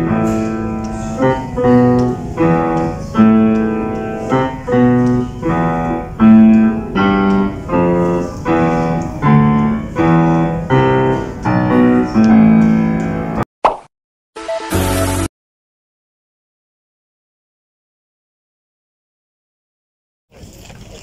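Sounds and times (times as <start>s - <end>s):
grand piano playing chords: 0.0s - 13.4s.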